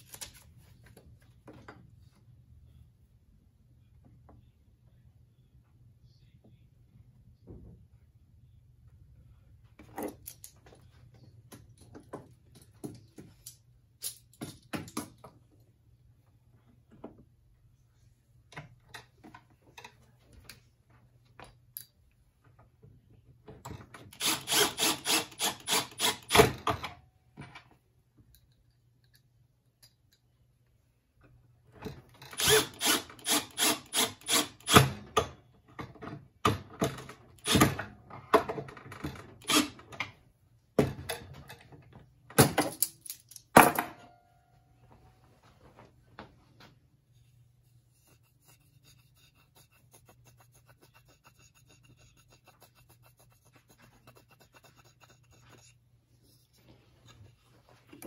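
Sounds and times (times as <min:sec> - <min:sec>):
cordless drill driving screws: 0:24.2 - 0:26.4, 0:32.4 - 0:34.9, 0:39.4 - 0:39.8.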